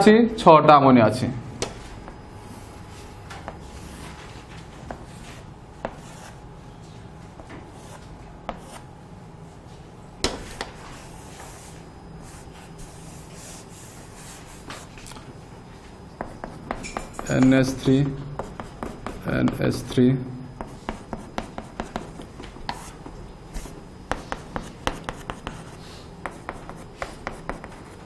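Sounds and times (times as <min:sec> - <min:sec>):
chalk scratching on chalkboard: 0:03.5 - 0:06.4, 0:07.7 - 0:08.8, 0:10.5 - 0:14.9, 0:16.2 - 0:20.0, 0:20.6 - 0:23.0, 0:23.6 - 0:28.0
chalk tapping on board: 0:07.8 - 0:08.8, 0:10.2 - 0:10.8, 0:16.2 - 0:20.0, 0:20.6 - 0:28.0.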